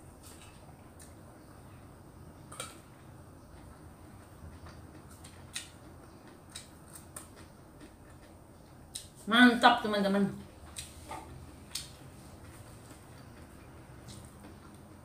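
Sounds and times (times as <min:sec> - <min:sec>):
person chewing food: 0:02.4 - 0:09.2, 0:10.6 - 0:15.0.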